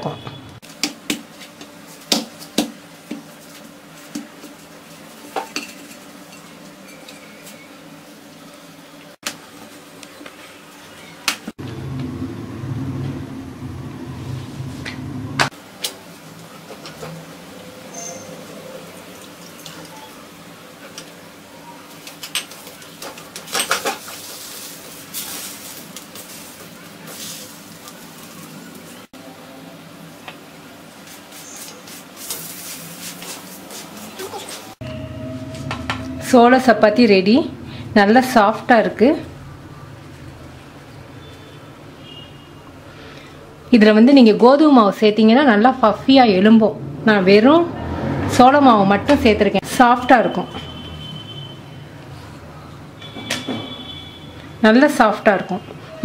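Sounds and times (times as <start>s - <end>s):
flatbread sizzling on hot griddle: 22.0s - 29.1s, 31.0s - 34.7s.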